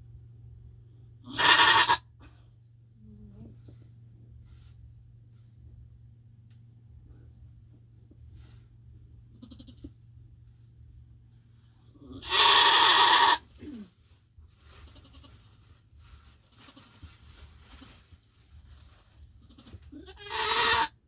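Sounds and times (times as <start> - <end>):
goat bleating loudly: 1.2 - 2.1, 9.4 - 9.9, 12.0 - 13.6, 14.9 - 15.4, 19.5 - 21.0.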